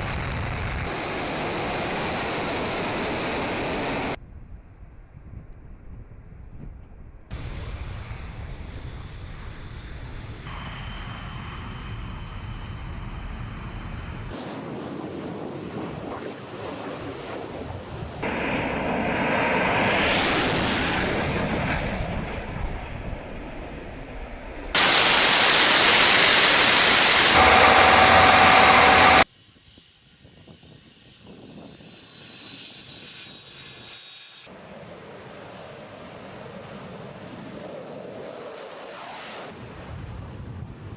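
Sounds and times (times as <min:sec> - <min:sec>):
jet engine rush: 0:00.0 - 0:04.2, 0:07.3 - 0:29.3, 0:34.5 - 0:40.0
steady tone: 0:24.8 - 0:34.5.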